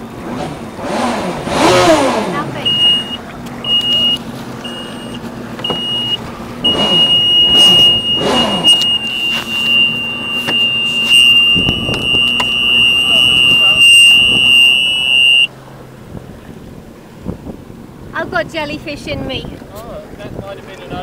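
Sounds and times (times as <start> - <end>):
jet ski engine revving: 0.0 - 21.0
high-pitched warning buzzer: 2.7 - 15.5.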